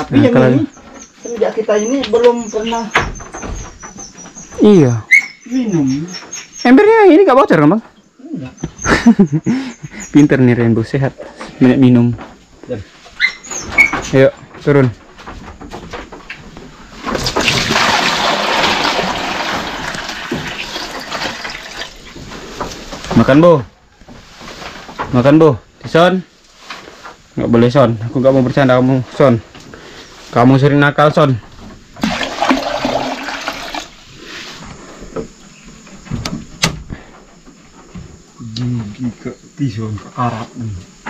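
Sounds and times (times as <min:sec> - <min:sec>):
water pouring and splashing: 0:17.1 - 0:22.2, 0:32.0 - 0:34.0.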